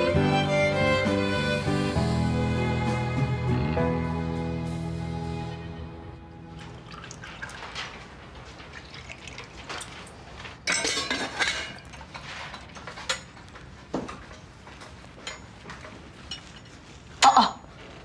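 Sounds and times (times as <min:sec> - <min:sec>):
liquid pouring: 0:06.5 - 0:10.2
clinks of glasses and plates: 0:10.6 - 0:13.4.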